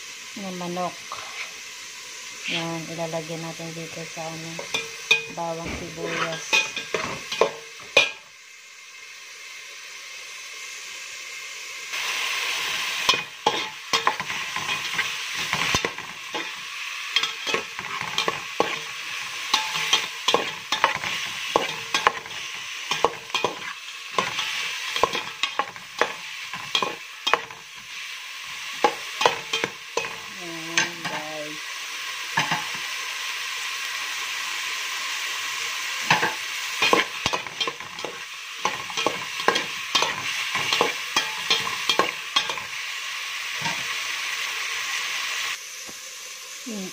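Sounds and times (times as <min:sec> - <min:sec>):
vegetables sizzling in oil: 0:00.0 - 0:46.9
metal spoon scraping pot: 0:05.9 - 0:08.2, 0:13.1 - 0:16.6, 0:17.2 - 0:27.6, 0:36.1 - 0:42.6.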